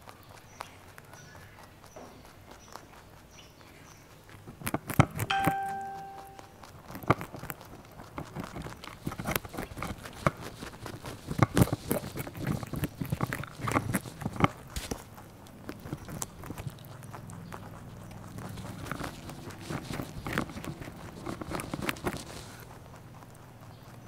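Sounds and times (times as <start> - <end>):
rabbits crunching cauliflower: 0.0 - 24.0
short ringing tone: 5.3 - 6.6.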